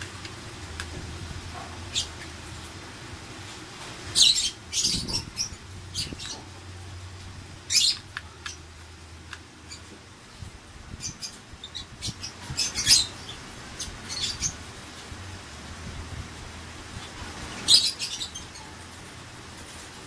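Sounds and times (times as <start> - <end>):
birds chirping and squawking: 0.0 - 20.0.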